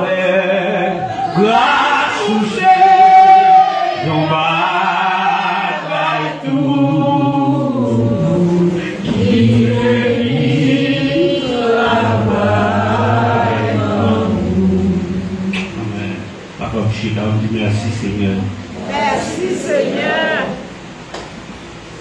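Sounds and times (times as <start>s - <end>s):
congregation singing a hymn: 0.0s - 16.6s, 17.5s - 20.8s.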